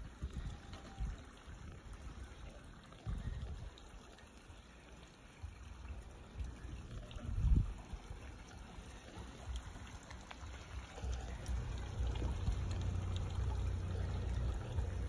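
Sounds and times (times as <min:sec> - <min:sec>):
faint water drips: 0:00.0 - 0:15.0
waterfall trickling over rocks: 0:00.0 - 0:15.0
low rumble: 0:10.4 - 0:15.0.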